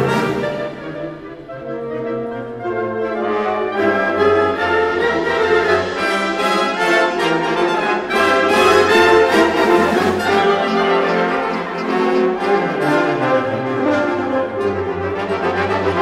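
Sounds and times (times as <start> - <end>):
orchestra playing with brass: 0.0 - 16.0.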